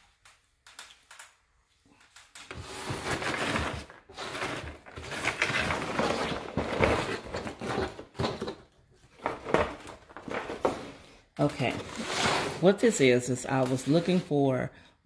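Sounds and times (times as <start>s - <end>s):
paper filler rustling: 2.4s - 14.4s.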